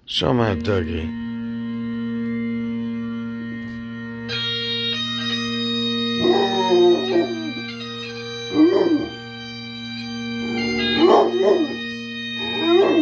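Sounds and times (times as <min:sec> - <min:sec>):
bagpipe music: 0:00.0 - 0:13.0
dog howling: 0:06.2 - 0:07.7, 0:08.5 - 0:09.2, 0:10.4 - 0:11.8, 0:12.4 - 0:13.0.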